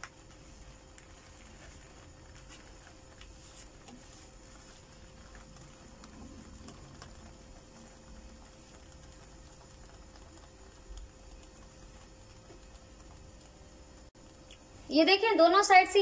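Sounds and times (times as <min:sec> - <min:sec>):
crepe crackling in a pan: 0:00.0 - 0:14.8.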